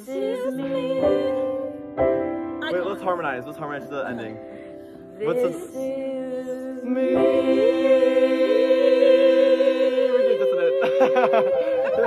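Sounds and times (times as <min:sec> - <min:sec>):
group singing a cappella: 0:00.0 - 0:02.0, 0:04.8 - 0:12.0.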